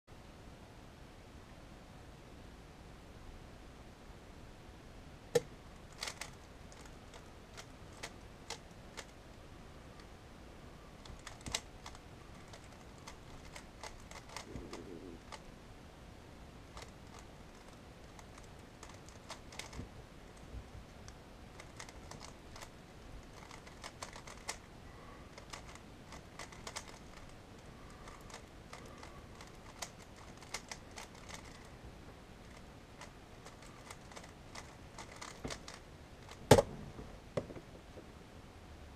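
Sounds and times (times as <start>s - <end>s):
puzzle cube plastic clicks: 5.4s - 9.2s, 11.0s - 15.4s, 16.7s - 24.7s, 25.3s - 31.7s, 32.4s - 36.7s.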